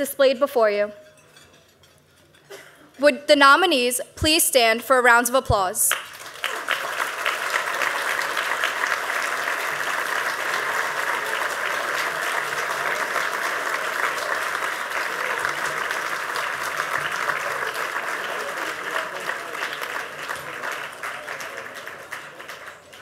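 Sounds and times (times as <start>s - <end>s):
audience applauding: 5.9s - 23.0s.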